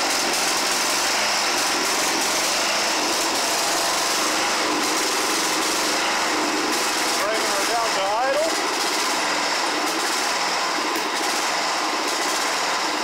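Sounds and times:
small gasoline engine running: 0:00.0 - 0:13.0.

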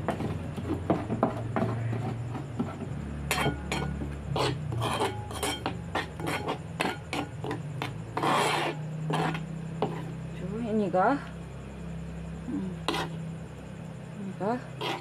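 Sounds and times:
pestle pounding in metal mortar: 0:00.0 - 0:08.7
spoon scraping and clinking metal bowl: 0:03.3 - 0:10.1, 0:14.8 - 0:15.0.

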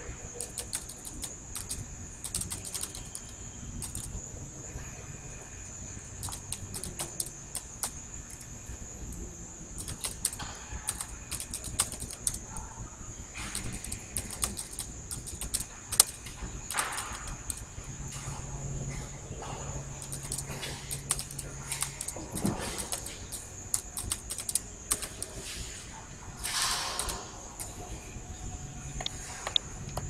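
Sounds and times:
computer keyboard typing: 0:00.3 - 0:04.2, 0:06.2 - 0:08.4, 0:09.8 - 0:12.7, 0:13.4 - 0:17.7, 0:20.0 - 0:25.4, 0:26.4 - 0:27.8.

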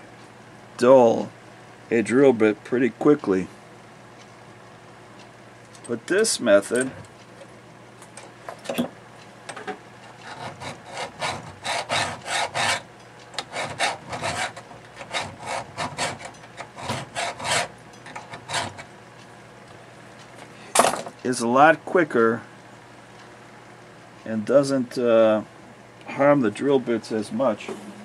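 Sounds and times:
file rasping on steel: 0:10.2 - 0:18.9.

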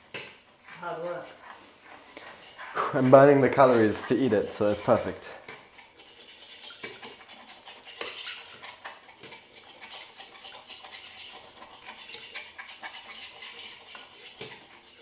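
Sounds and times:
utensil scraping and clicking on pan: 0:00.0 - 0:15.0.

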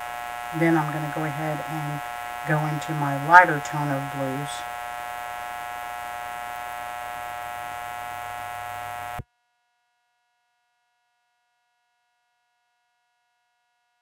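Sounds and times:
electrical buzz: 0:00.0 - 0:09.2.

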